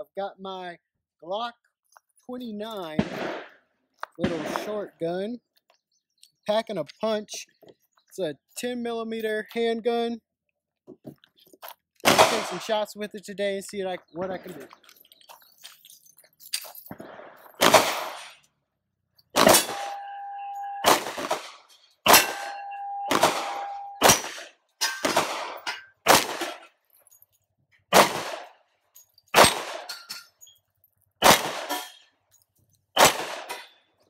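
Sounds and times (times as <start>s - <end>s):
pistol shots: 2.9s - 3.6s, 4.2s - 4.8s, 12.0s - 12.8s, 16.9s - 18.4s, 19.4s - 26.6s, 27.9s - 28.6s, 29.3s - 29.9s, 31.2s - 32.0s, 33.0s - 33.7s
steel targets clanging: 19.4s - 26.7s, 29.0s - 30.6s, 31.5s - 32.1s.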